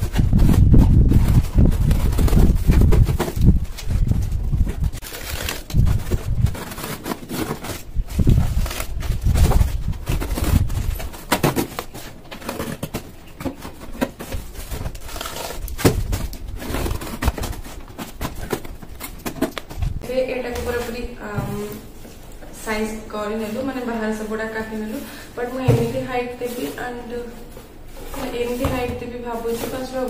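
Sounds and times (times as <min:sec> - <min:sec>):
cutting cardboard: 0:00.0 - 0:19.9.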